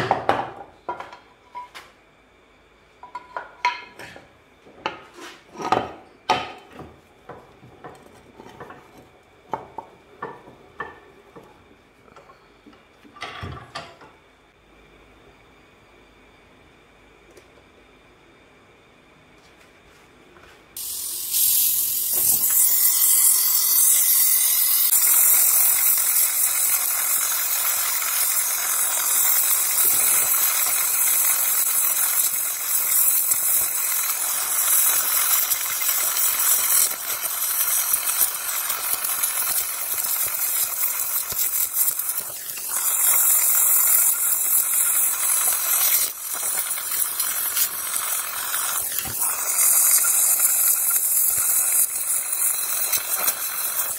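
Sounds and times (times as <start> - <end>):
welding torch flame hissing: 20.8 - 53.9.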